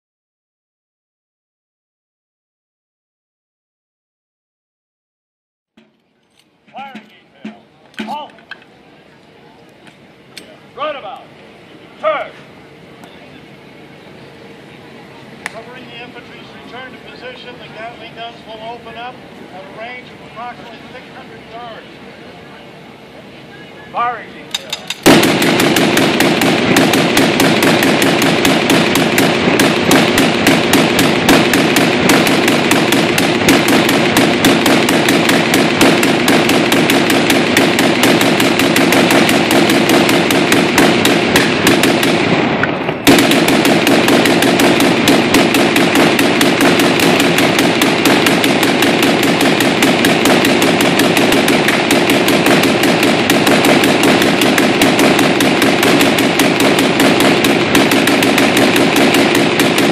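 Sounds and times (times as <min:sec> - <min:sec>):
gatling gun firing rapid burst: 0:25.0 - 0:42.4, 0:43.0 - 0:59.9.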